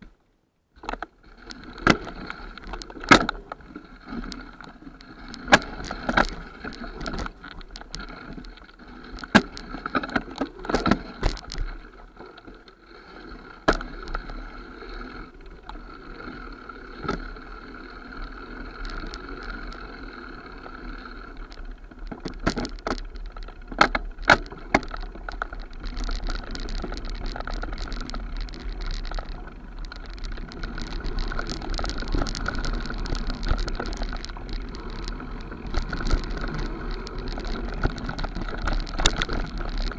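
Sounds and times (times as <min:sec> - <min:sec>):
bike tyres rolling on dirt: 0:00.0 - 0:39.9
bike clattering over bumps: 0:05.2 - 0:11.8.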